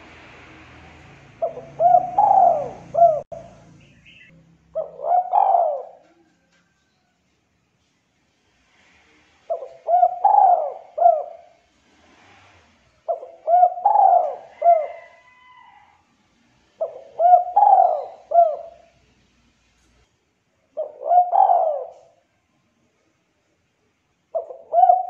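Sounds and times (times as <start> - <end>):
dove cooing: 1.2 - 3.5, 4.1 - 6.5, 9.5 - 11.7, 13.0 - 15.7, 16.7 - 19.0, 20.7 - 22.3, 24.3 - 25.0.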